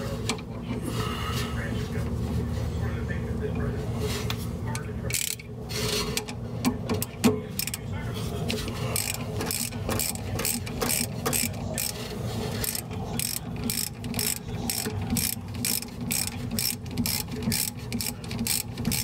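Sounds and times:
ratchet wrench clicking: 5.1s - 5.5s, 7.0s - 7.8s, 9.0s - 12.0s, 12.6s - 19.0s.

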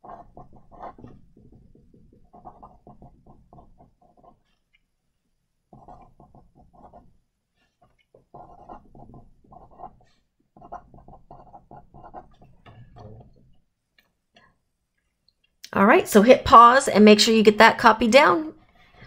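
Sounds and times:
marker scratching on paper: 0.0s - 4.8s, 5.7s - 12.6s.

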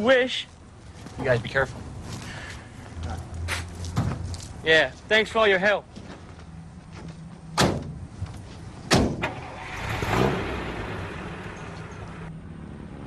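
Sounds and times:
truck doors slamming: 7.5s - 8.0s, 8.8s - 12.2s
truck engine revving and running: 9.2s - 13.0s.

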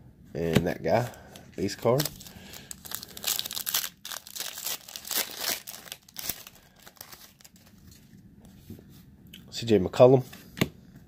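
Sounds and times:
foil wrapper crinkling: 1.6s - 8.0s
foil wrapper tearing: 1.8s - 7.7s.

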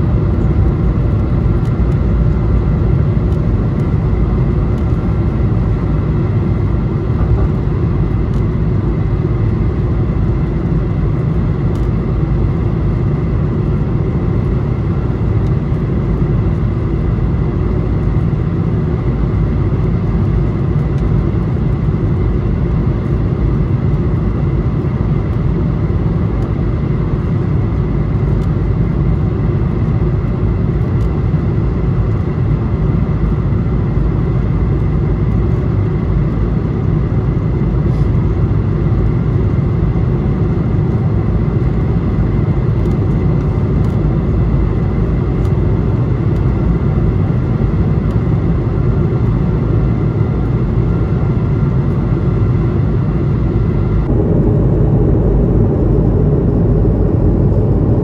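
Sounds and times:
jet engine rumble: 0.0s - 58.0s
faint high whine: 52.7s - 58.0s.

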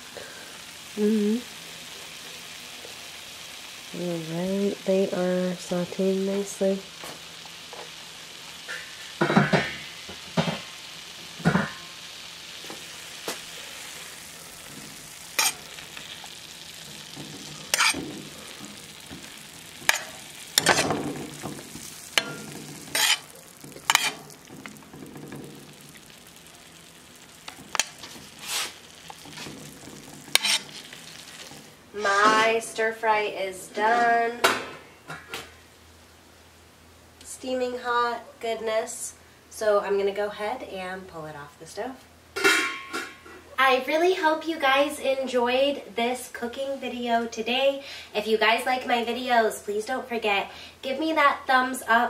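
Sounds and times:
vegetables sizzling in a pan: 0.0s - 52.0s
metal spoon scraping a pan: 13.8s - 25.9s, 27.5s - 32.5s.

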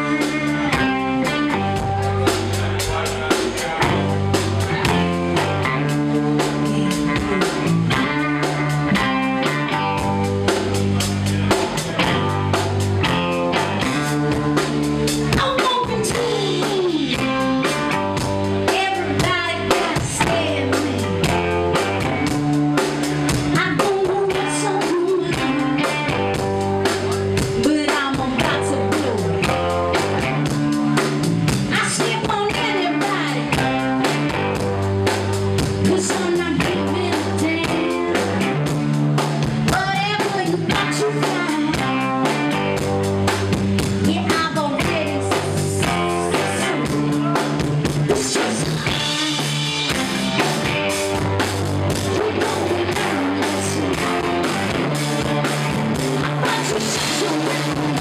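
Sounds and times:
drum kit beating rhythm: 0.0s - 58.0s
electric guitars: 0.0s - 58.0s
woman singing into microphone: 15.3s - 17.4s, 18.7s - 21.2s, 23.5s - 26.0s, 27.6s - 29.5s, 31.7s - 33.8s, 35.8s - 38.4s, 39.7s - 42.5s, 44.0s - 47.4s, 48.1s - 49.6s, 52.0s - 54.2s, 56.2s - 58.0s.

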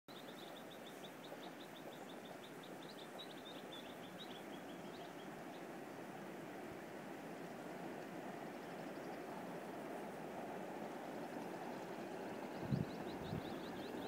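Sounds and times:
bird chirping: 0.1s - 5.7s, 11.1s - 14.0s
steady background noise: 0.1s - 14.0s.

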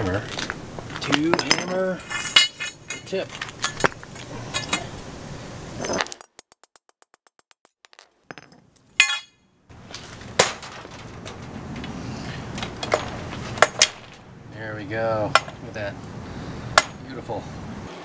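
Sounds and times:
low background noise: 0.0s - 6.0s, 8.3s - 17.9s
metal clinking on concrete: 0.9s - 4.9s, 5.8s - 14.2s, 15.3s - 15.8s.

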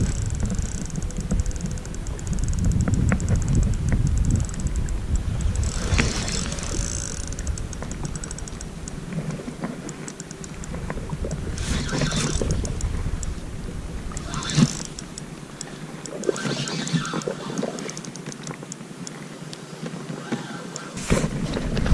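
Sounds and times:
wind buffeting microphone: 0.0s - 16.2s
fishing reel ticking: 0.0s - 19.2s
fishing rod swishes: 11.6s - 12.4s, 16.2s - 17.7s.

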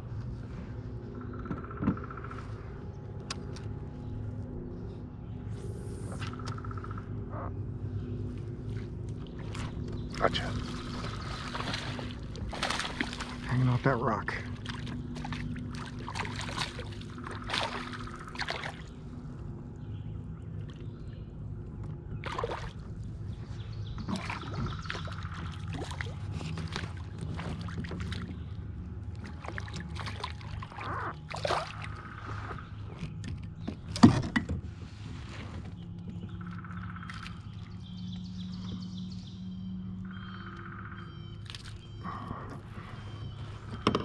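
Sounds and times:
fish splashing in water: 9.3s - 13.6s, 14.4s - 19.0s, 22.2s - 22.8s, 24.0s - 28.5s, 29.2s - 33.1s.

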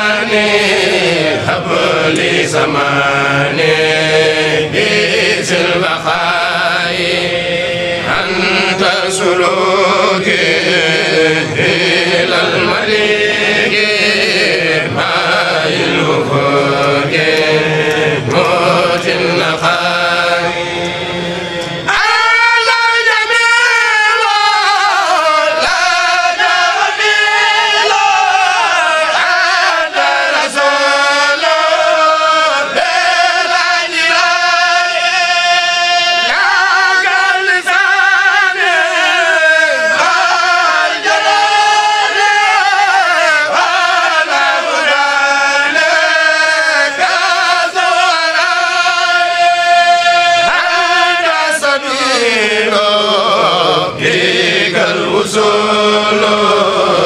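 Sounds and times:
voices chanting unaccompanied: 0.0s - 57.0s.

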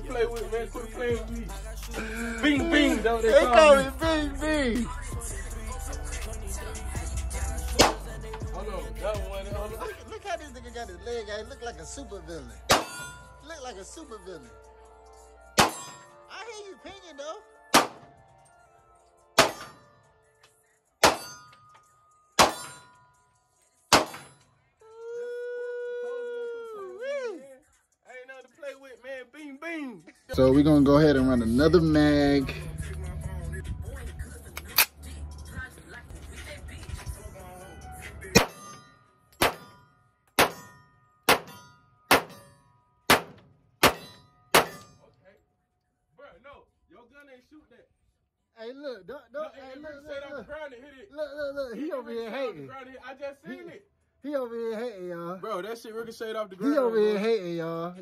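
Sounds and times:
pistol shots with echo: 7.8s - 8.1s, 12.7s - 13.2s, 15.6s - 16.1s, 17.7s - 18.2s, 19.4s - 19.8s, 21.0s - 21.4s, 22.4s - 22.8s, 23.9s - 24.4s, 38.4s - 38.8s, 39.4s - 39.7s, 40.4s - 42.5s, 43.1s - 44.9s
metallic ring of steel targets: 12.7s - 13.5s, 15.6s - 16.3s, 19.4s - 20.0s, 21.0s - 23.3s, 23.9s - 24.5s, 38.3s - 45.1s.

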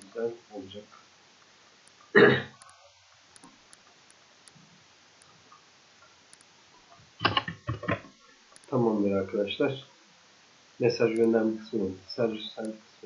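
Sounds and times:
faint clicks: 0.9s - 8.8s, 11.1s - 11.4s, 12.6s - 12.8s
person clearing throat: 2.2s - 2.6s.

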